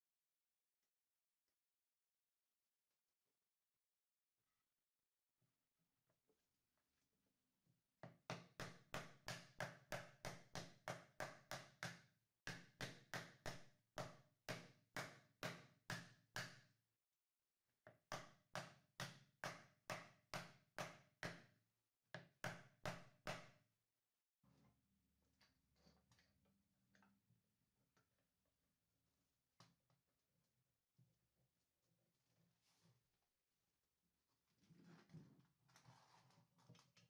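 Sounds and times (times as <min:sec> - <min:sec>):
rubber mallet tapping wood: 0:08.0 - 0:16.6.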